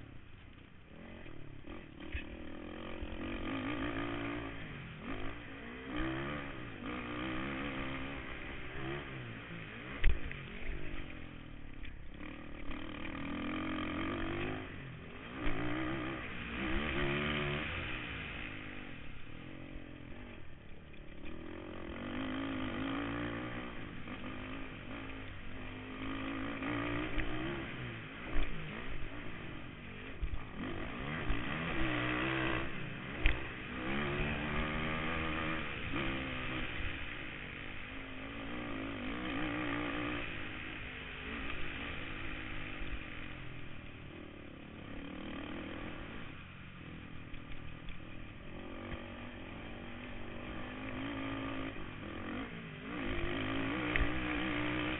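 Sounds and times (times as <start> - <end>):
quad bike engine revving: 0.0 - 54.9.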